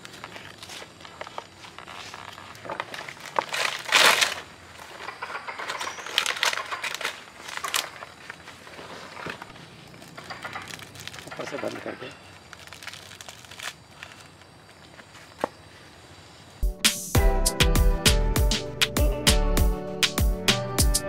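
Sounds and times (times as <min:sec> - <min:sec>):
leaf rustling and ripping: 0:00.0 - 0:15.4.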